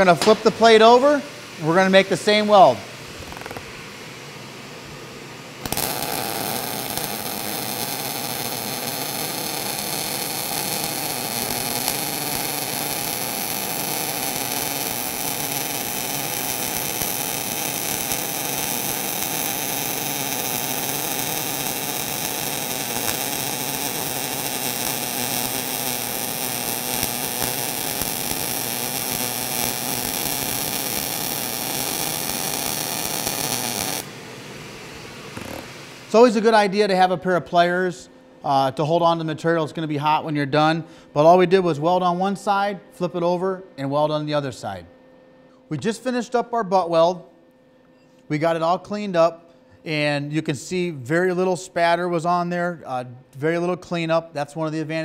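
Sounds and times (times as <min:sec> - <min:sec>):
welding arc crackling: 0:00.0 - 0:01.2, 0:01.8 - 0:03.8, 0:05.6 - 0:34.1.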